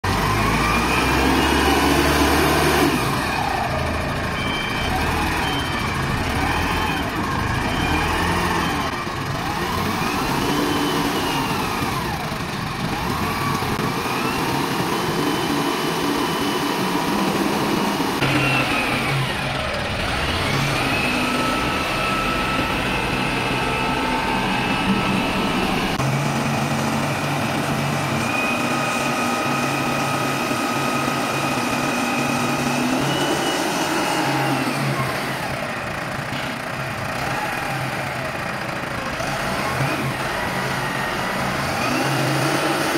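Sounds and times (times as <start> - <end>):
diesel engine revving: 0.0 - 42.9
machine whine: 18.2 - 35.5.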